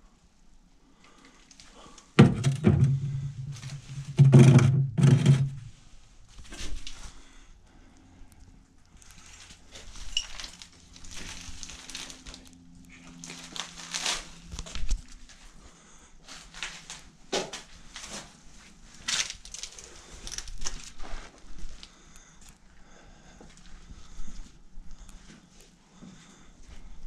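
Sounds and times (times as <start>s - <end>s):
footsteps crunching over debris: 9.0s - 15.6s, 16.3s - 21.9s.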